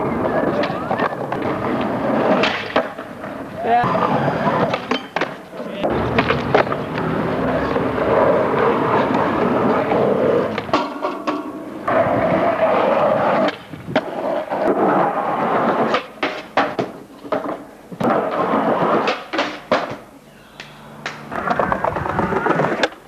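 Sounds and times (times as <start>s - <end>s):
skateboard clacking on ground: 0.0s - 4.0s, 4.6s - 14.8s, 15.8s - 20.1s
skateboard wheels rolling on asphalt: 0.0s - 20.1s, 21.1s - 23.0s.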